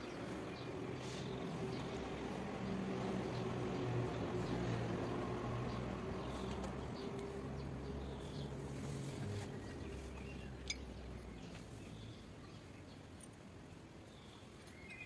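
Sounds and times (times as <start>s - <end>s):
faint bird chirps: 14.1s - 15.0s.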